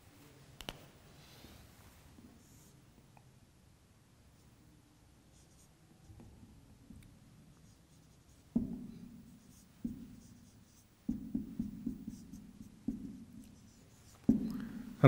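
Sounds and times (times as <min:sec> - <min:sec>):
marker writing on whiteboard: 0:05.2 - 0:15.0.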